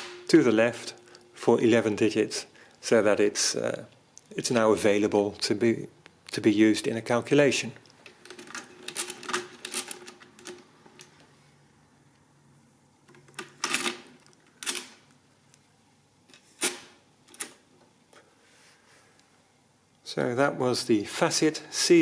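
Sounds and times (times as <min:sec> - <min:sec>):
mechanical calculator rattling clicks: 0:08.2 - 0:10.6.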